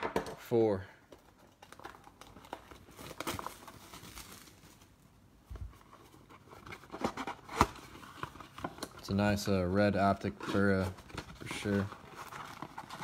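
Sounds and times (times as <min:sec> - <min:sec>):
packaging crinkling and tearing: 0:01.4 - 0:05.0, 0:10.2 - 0:13.0.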